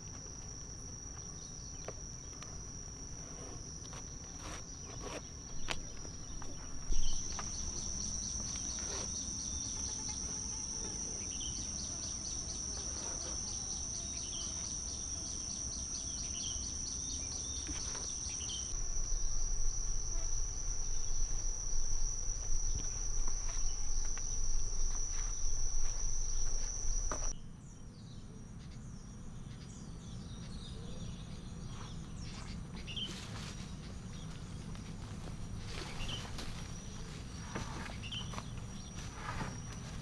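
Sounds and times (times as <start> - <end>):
forest background: 0.0 - 40.0
high-pitched insect drone: 0.7 - 27.4.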